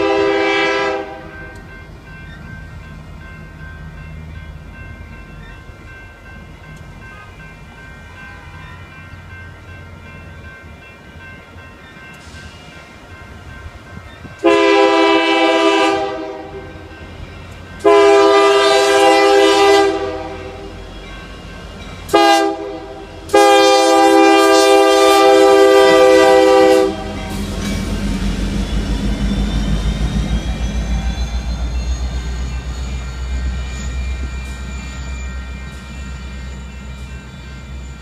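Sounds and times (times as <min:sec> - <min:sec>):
locomotive air horn blasts: 0:00.0 - 0:01.6, 0:14.4 - 0:16.8, 0:17.8 - 0:20.8, 0:22.1 - 0:27.4
locomotive rumble: 0:00.0 - 0:38.0.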